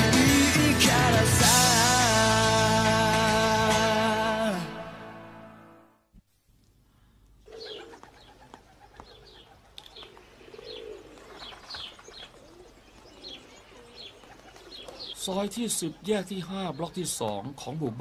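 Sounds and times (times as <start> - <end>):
birds chirping: 7.2 - 18.0
pigeons cooing: 7.4 - 17.0.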